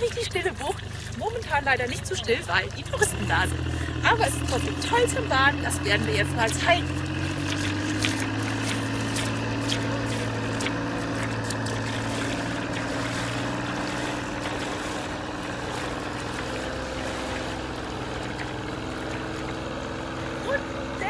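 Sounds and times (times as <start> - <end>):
boat engine humming: 0.0 - 21.0
wading splashes: 0.0 - 21.0.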